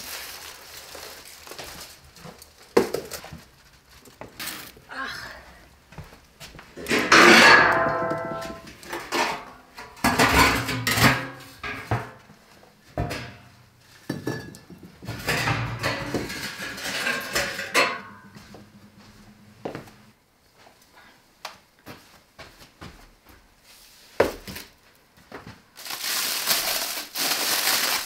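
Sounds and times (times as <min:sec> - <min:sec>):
ringing metal clang: 0:07.2 - 0:08.6.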